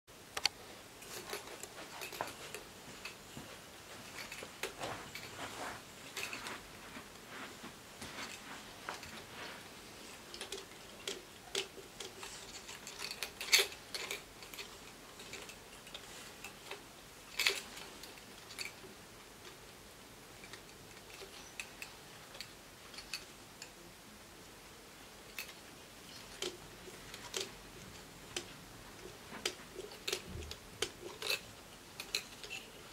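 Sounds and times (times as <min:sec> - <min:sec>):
wooden marionette clacking: 0:25.3 - 0:32.9.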